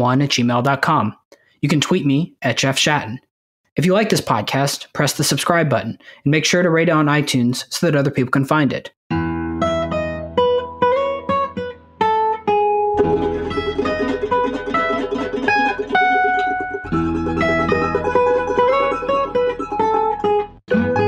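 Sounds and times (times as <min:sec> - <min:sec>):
plucked string music: 0:09.1 - 0:21.0.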